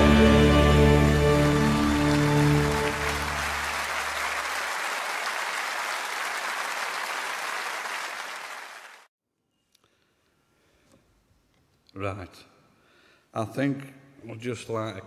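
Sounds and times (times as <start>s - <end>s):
worship song chord: 0.0s - 4.0s
audience applause: 0.0s - 9.1s.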